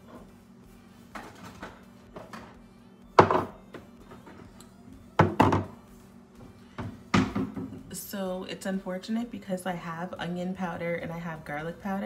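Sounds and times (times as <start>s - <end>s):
objects thudding as set down: 5.2s - 5.8s.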